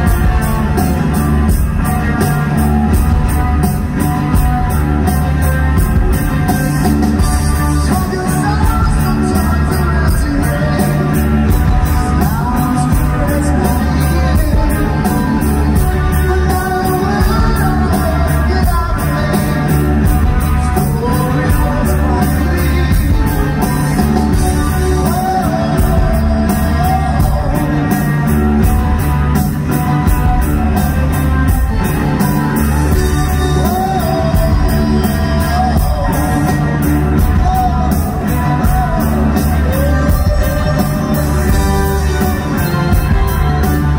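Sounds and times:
live rock band: 0:00.0 - 0:43.9
man singing: 0:06.2 - 0:29.1, 0:32.0 - 0:43.9.

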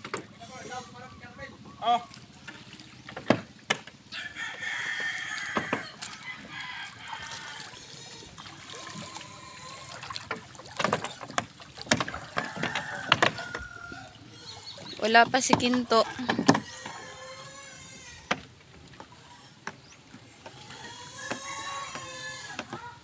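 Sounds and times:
water splashes and knocks: 0:00.0 - 0:00.4, 0:01.9 - 0:23.0
wet net hauled over boat: 0:00.0 - 0:23.0
drawn-out call: 0:00.3 - 0:02.2, 0:20.5 - 0:23.0.

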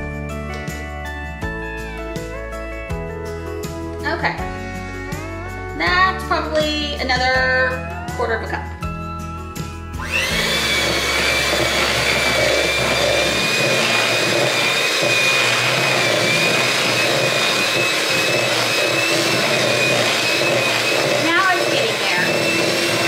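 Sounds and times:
electric hand mixer whining: 0:10.0 - 0:23.0.

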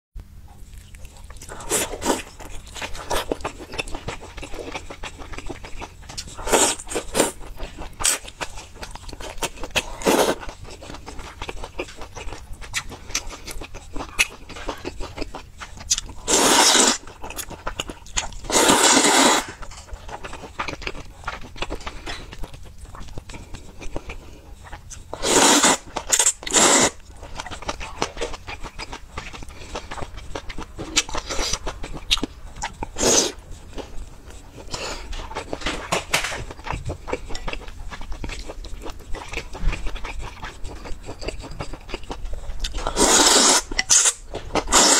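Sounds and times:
chewing and mouth clicks: 0:00.5 - 0:44.9
noodle slurps: 0:16.2 - 0:17.0, 0:18.5 - 0:19.6, 0:25.2 - 0:27.0, 0:42.9 - 0:44.9.

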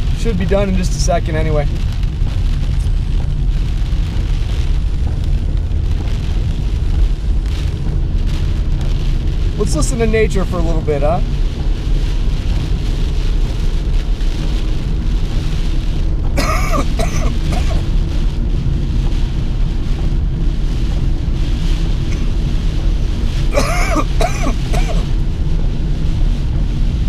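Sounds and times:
car road and engine rumble: 0:00.0 - 0:27.0
rain on windshield: 0:00.0 - 0:27.0
windshield wipers: 0:01.7 - 0:10.7.

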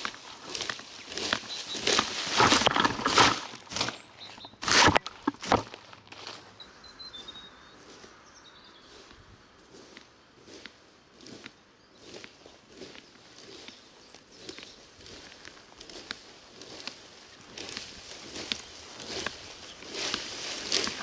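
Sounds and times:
rake scraping leaves on lawn: 0:00.0 - 0:06.5, 0:14.4 - 0:21.0
leaves rustling: 0:00.0 - 0:21.0.

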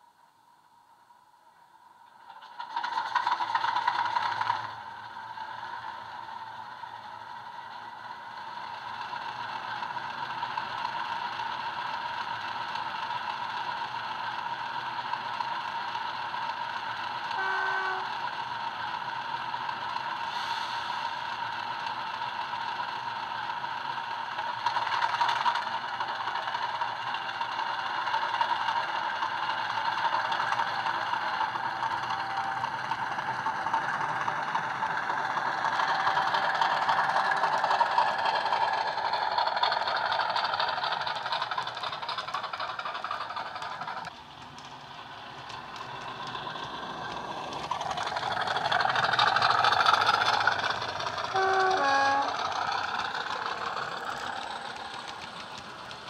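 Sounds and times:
diesel engine sound from small speaker: 0:01.8 - 0:56.0
short tone: 0:17.4 - 0:18.2, 0:32.0 - 0:33.0, 0:51.3 - 0:52.4.

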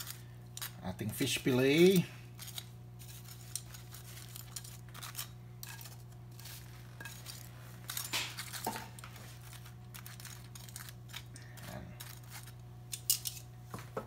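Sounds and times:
steady low hum: 0:00.0 - 0:14.0
metal tongs clinking on pan: 0:12.9 - 0:13.5.

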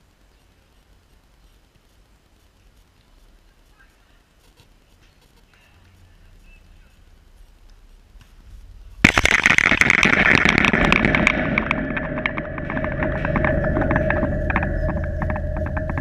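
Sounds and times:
rapid clicks: 0:07.0 - 0:16.0
fence rattling and ringing: 0:09.3 - 0:16.0.

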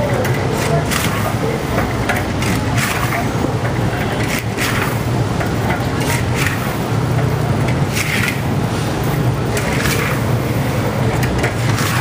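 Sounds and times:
street traffic rumble: 0:00.0 - 0:12.0
paddle scraping chestnuts in wok: 0:00.1 - 0:12.0.

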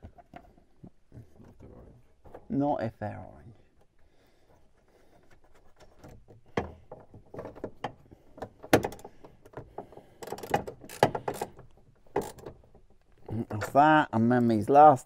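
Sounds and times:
metal brackets and bolts clicking: 0:05.6 - 0:13.8.

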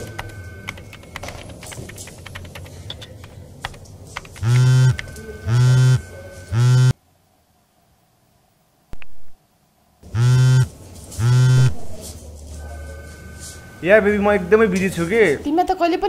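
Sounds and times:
laptop keyboard typing: 0:00.0 - 0:05.2
phone vibrating on desk: 0:04.4 - 0:07.0, 0:10.0 - 0:11.8.

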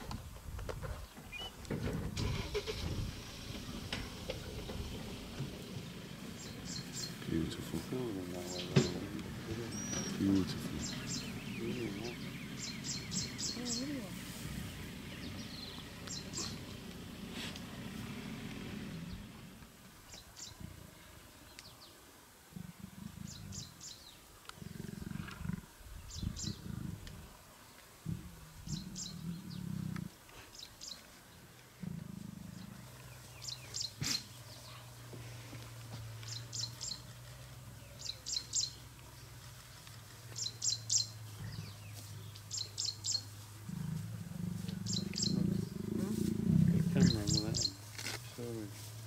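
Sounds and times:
bird chirping: 0:01.0 - 0:01.6, 0:06.2 - 0:16.9, 0:28.6 - 0:31.5, 0:32.5 - 0:34.9, 0:36.2 - 0:37.2, 0:37.8 - 0:38.9, 0:40.3 - 0:43.3, 0:44.6 - 0:45.9, 0:46.7 - 0:47.8
lions giving low calls: 0:24.6 - 0:27.3, 0:43.5 - 0:47.8.

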